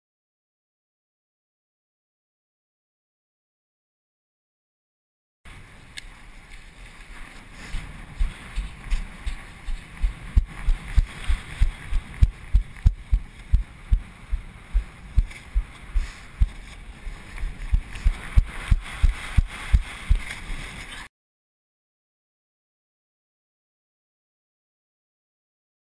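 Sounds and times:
wind noise on microphone: 0:05.5 - 0:21.1
footsteps on wet sand: 0:06.5 - 0:21.0.

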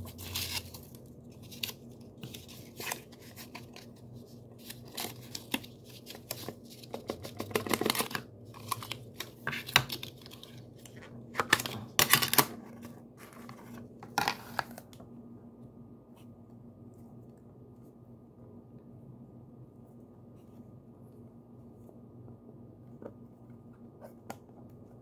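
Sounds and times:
plastic wrap crinkling and tearing: 0:00.0 - 0:14.9.

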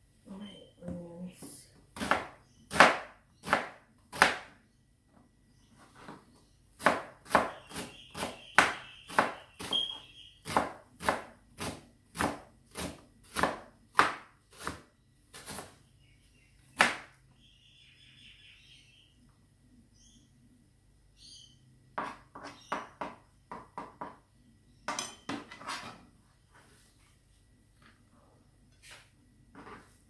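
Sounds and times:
knife chopping on plastic board: 0:02.0 - 0:04.5, 0:06.8 - 0:09.8, 0:10.4 - 0:15.7.

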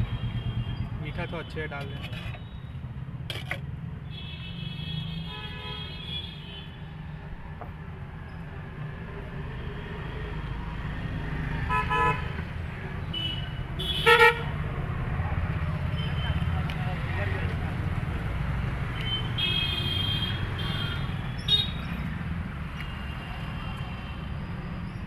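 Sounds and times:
street traffic rumble: 0:00.0 - 0:25.0
vehicle horns: 0:04.1 - 0:06.7, 0:13.2 - 0:14.5.

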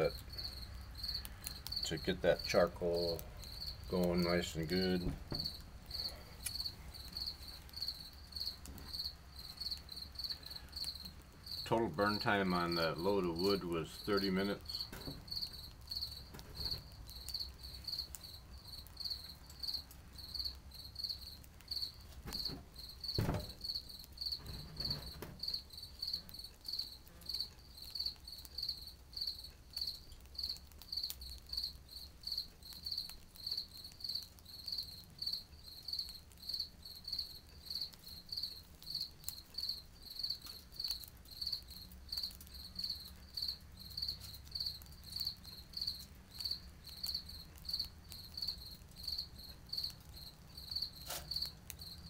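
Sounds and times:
cricket chirping: 0:00.0 - 0:52.0
knock: 0:05.0 - 0:05.6, 0:23.2 - 0:23.6.

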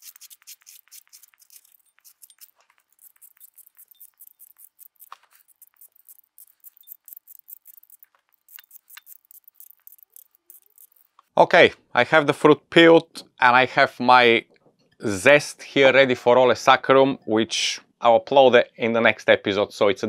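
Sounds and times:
peeler scraping citrus zest: 0:00.0 - 0:11.2.

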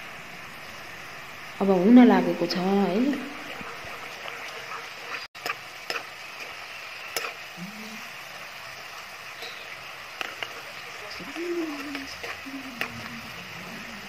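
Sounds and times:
deep-frying sizzle in oil: 0:00.0 - 0:14.0.

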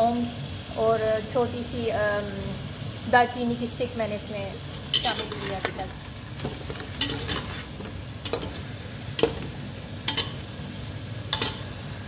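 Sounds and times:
meat sizzling in a pot: 0:00.0 - 0:12.0
metal spoon scraping a pot: 0:04.7 - 0:05.8, 0:06.4 - 0:08.6.

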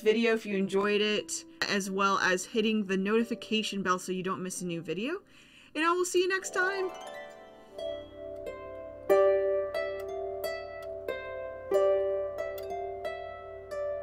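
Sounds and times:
harp plucked slow melody: 0:06.4 - 0:14.0.

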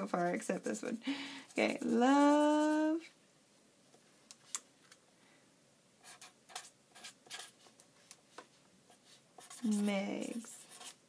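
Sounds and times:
pen scratching on paper: 0:01.5 - 0:03.1, 0:06.0 - 0:07.7, 0:08.9 - 0:11.0.

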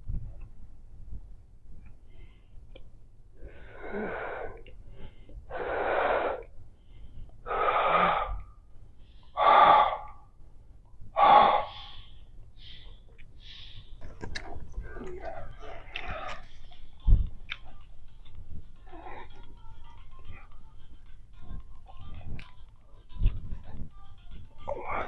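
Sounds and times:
woman breathing loudly: 0:03.4 - 0:10.3, 0:11.2 - 0:14.0.

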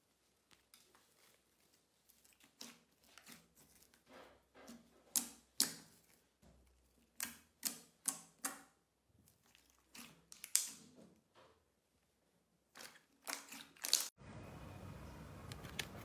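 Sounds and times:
slime squelching: 0:00.0 - 0:11.0, 0:12.6 - 0:14.2.

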